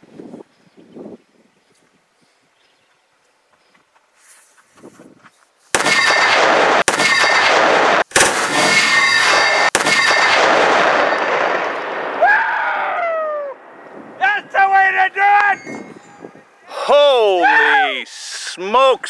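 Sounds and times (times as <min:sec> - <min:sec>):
loud explosion blast: 0:05.8 - 0:14.2.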